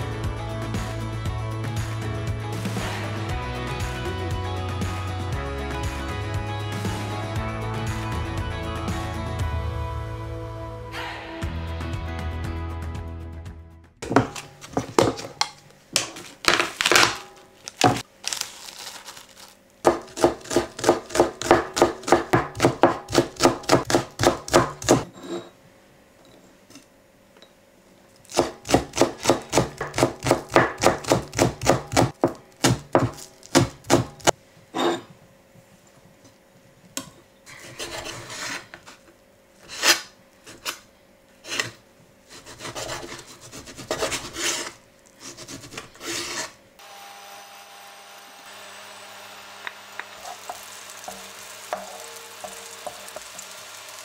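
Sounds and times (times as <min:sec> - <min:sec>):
knife chopping on wooden board: 0:14.0 - 0:15.4, 0:19.9 - 0:25.1, 0:28.3 - 0:34.3.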